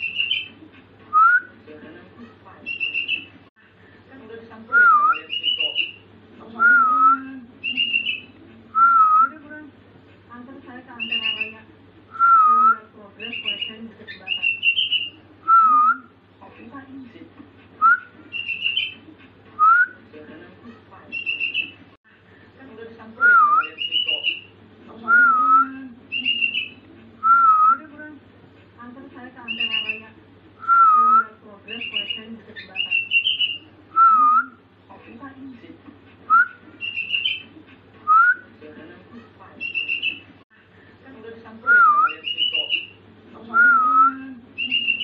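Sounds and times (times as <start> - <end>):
bird chirping: 0.0 - 0.6, 2.6 - 3.4, 5.1 - 6.0, 7.6 - 8.4, 11.0 - 11.6, 13.2 - 15.2, 18.3 - 19.0, 21.1 - 21.8, 23.6 - 24.5, 26.1 - 26.8, 29.5 - 30.0, 31.7 - 33.7, 36.8 - 37.5, 39.6 - 40.3, 42.1 - 43.0, 44.6 - 45.0
bird whistled notes: 2.7 - 3.3.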